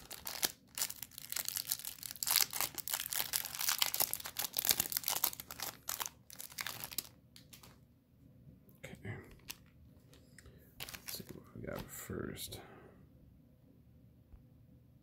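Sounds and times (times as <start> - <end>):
plastic wrapper crinkling and tearing: 0.0 - 7.8, 9.3 - 9.7, 10.8 - 11.3.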